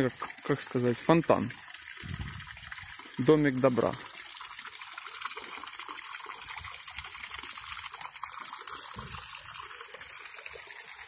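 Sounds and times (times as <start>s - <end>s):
fountain water trickling: 0.0s - 11.0s.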